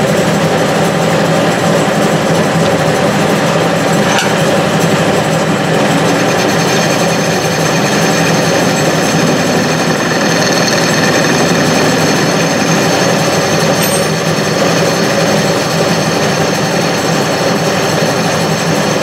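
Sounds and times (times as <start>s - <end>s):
metal lathe running: 0.0s - 19.0s.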